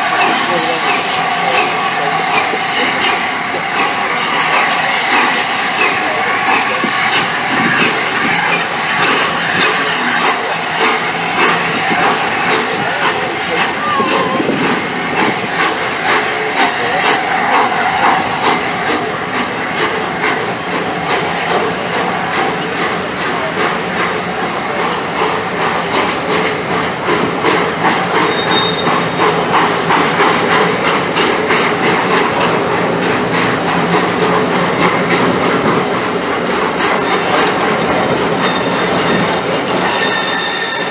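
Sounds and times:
rumble of carriages: 0.0 - 40.9
steam hiss: 0.0 - 40.9
train wheels rushing on rail: 0.0 - 40.9
high squeal: 28.2 - 29.2, 37.9 - 40.9.

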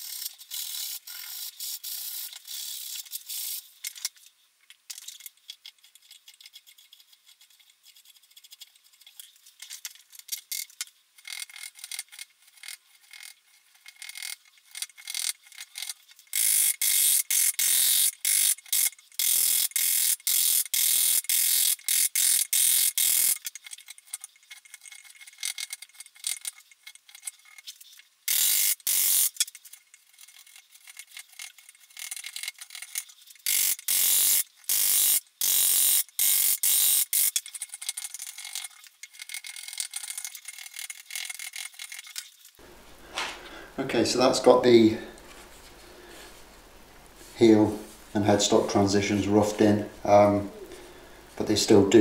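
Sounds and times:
quiet scraping: 42.6 - 52.0.

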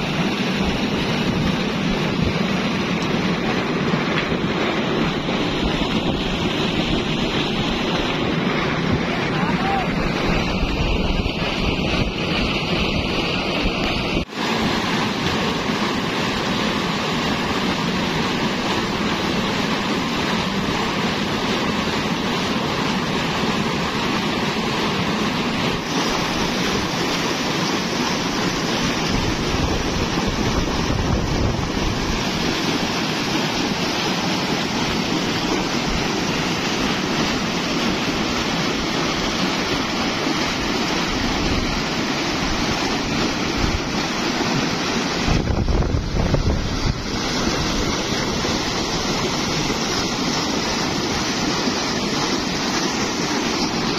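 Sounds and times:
water gushing into concrete tank: 0.0 - 53.9.

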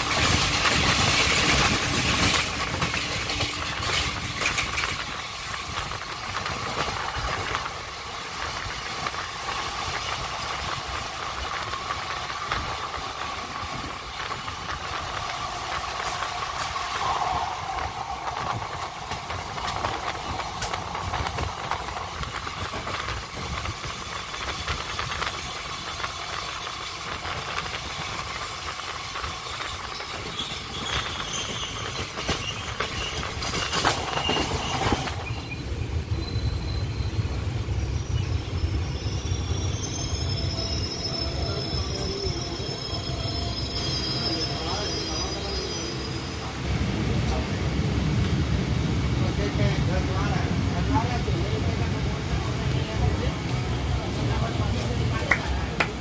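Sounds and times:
train wheels rumbling on rails: 0.0 - 56.0
rushing air: 5.8 - 24.0.

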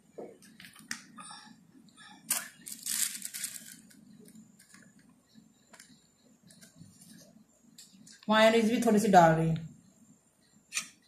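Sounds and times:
paper crinkling and rustling: 2.4 - 4.9.

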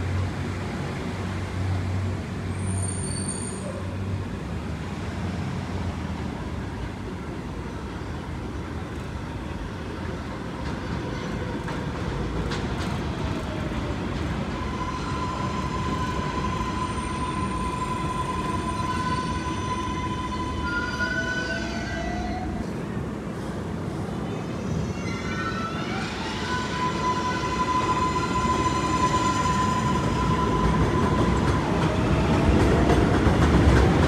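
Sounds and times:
train wheels rumbling on rails: 0.0 - 34.0
long high squeal: 14.5 - 22.6, 24.7 - 31.5.

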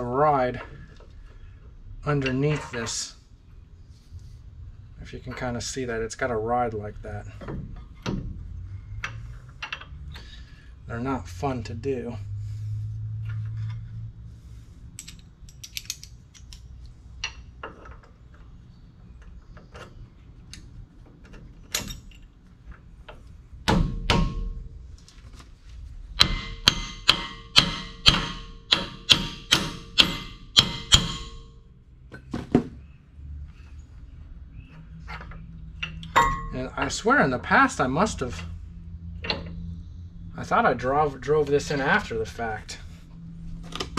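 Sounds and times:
hammer striking metal: 23.7 - 24.6, 26.2 - 31.6, 35.8 - 36.6.

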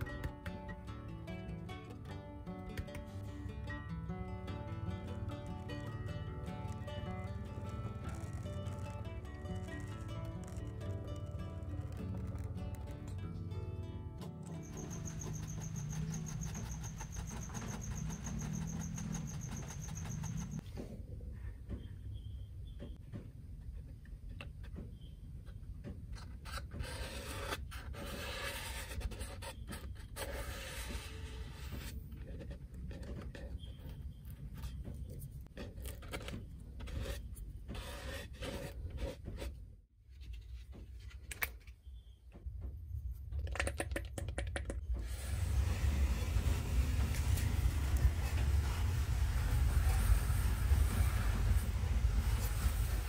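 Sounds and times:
fingers scratching paper cone: 6.6 - 13.0, 14.6 - 20.6, 26.2 - 34.0, 45.2 - 53.0.

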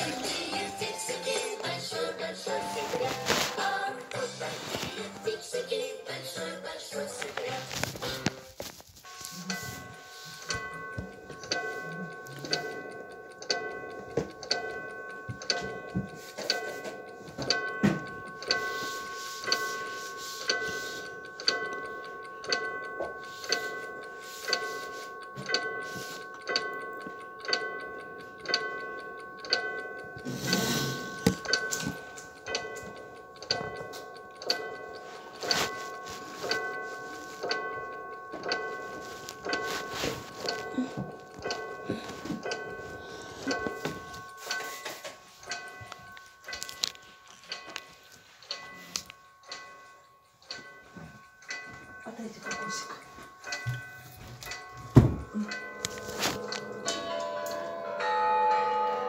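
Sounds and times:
clock ticking: 0.0 - 59.0
steady high tone: 9.1 - 12.9.

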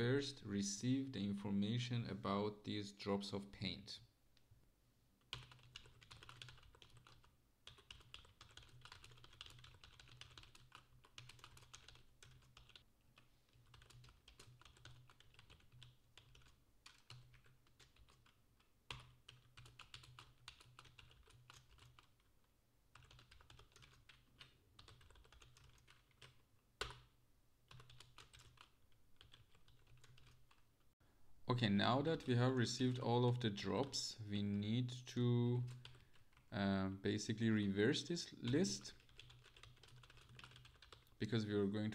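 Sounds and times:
computer keyboard typing: 5.3 - 22.3, 22.9 - 30.6, 38.4 - 41.2.

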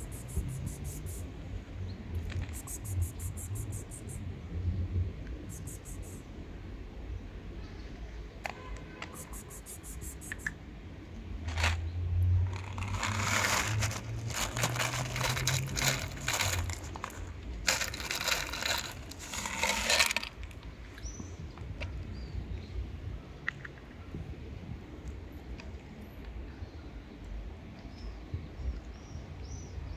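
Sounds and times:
dry cat food rattling onto gravel: 2.2 - 4.1, 11.5 - 11.8, 12.4 - 20.6.

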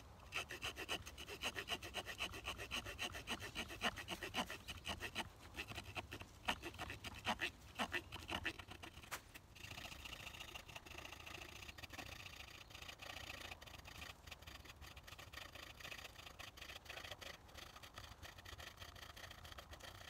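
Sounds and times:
scraping on hatchet head: 0.3 - 9.2.

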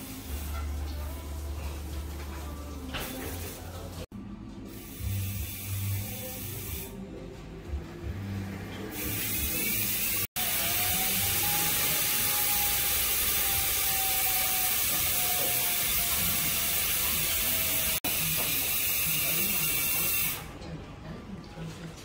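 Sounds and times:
loud mechanical whirring: 9.0 - 18.0.

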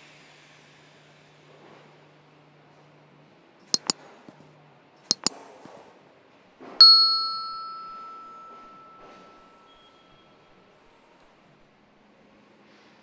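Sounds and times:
bell ding ringing: 5.1 - 5.3, 6.8 - 9.7
mouse double clicks: 5.1 - 5.3.

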